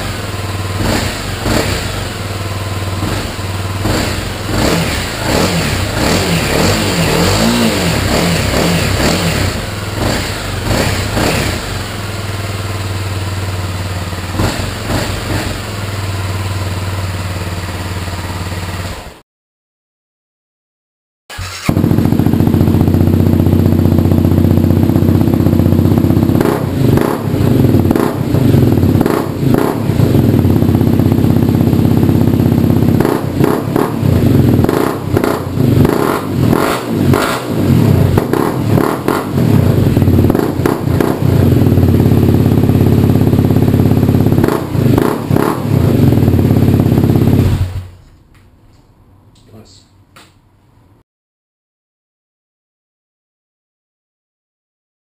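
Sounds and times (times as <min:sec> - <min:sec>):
motorcycle engine idling: 0:00.0 - 0:19.2, 0:21.6 - 0:48.0.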